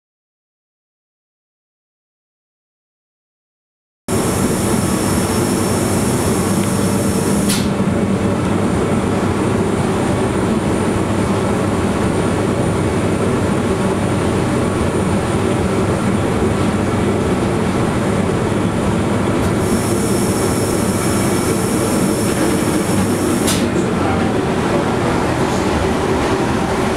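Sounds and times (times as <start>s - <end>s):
railcar running noise: 4.1s - 26.9s
high hiss: 19.6s - 23.6s.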